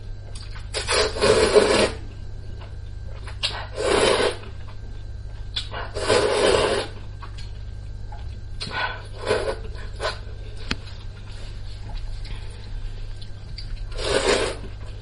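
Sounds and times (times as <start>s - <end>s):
person slurping noodles: 0.8s - 2.0s, 3.7s - 4.4s, 5.9s - 7.0s, 9.1s - 10.2s, 13.9s - 14.7s.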